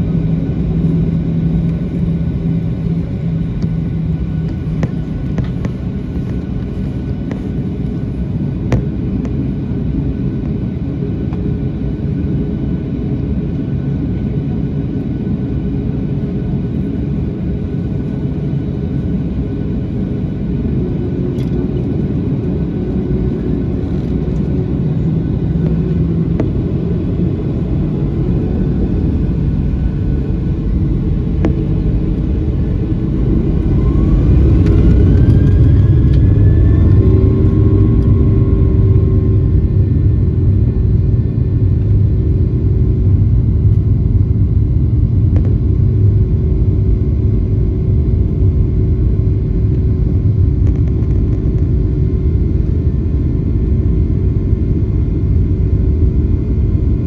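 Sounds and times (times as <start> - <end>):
wheels rumbling on runway: 0.0 - 9.8, 20.6 - 47.0
jet engines at takeoff thrust: 0.0 - 57.0
rising whine: 19.0 - 57.0.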